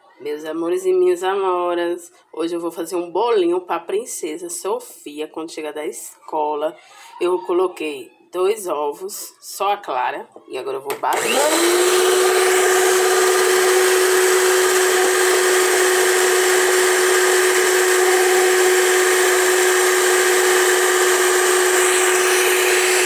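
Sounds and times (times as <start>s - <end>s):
electric hand mixer whining: 10.9s - 23.0s
beaters churning froth: 11.2s - 23.0s.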